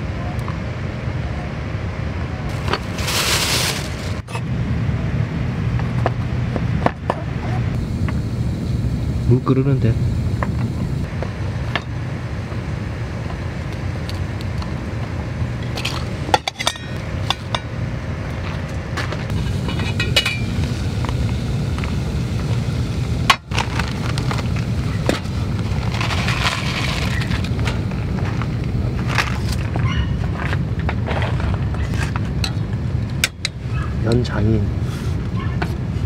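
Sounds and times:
gas stove burning: 0:00.0 - 0:36.0
water boiling in pot: 0:19.3 - 0:29.8.

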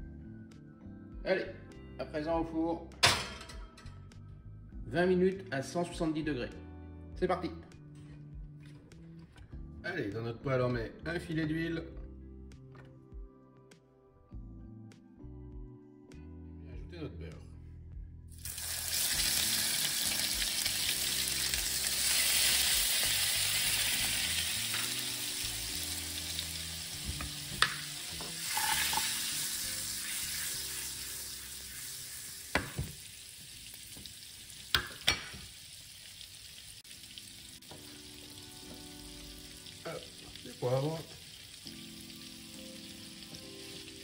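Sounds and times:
butter sizzling in oil: 0:18.4 - 0:44.0
pepper mill grinding: 0:27.6 - 0:29.4.

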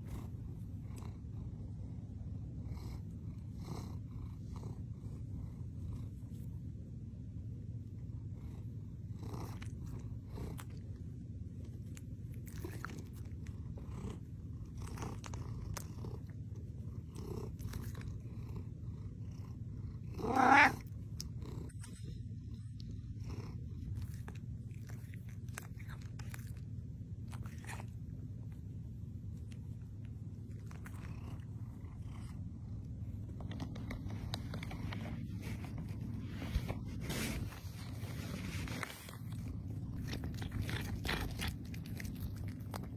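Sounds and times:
cat purring: 0:00.0 - 0:42.9
cat meowing: 0:20.2 - 0:20.8.

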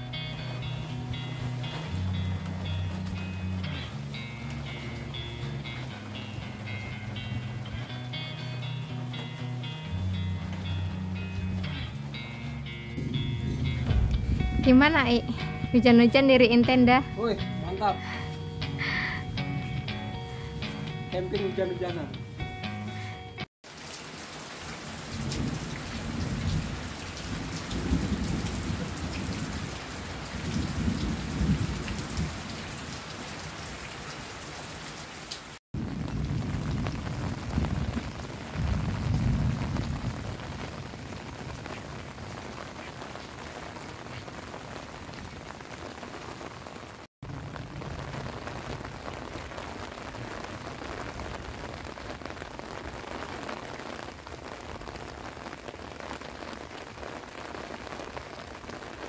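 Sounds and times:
heavy rain: 0:00.0 - 0:22.0, 0:22.9 - 0:59.0
low rumbles of thunder: 0:13.0 - 0:15.9, 0:25.0 - 0:32.8, 0:35.8 - 0:42.4.

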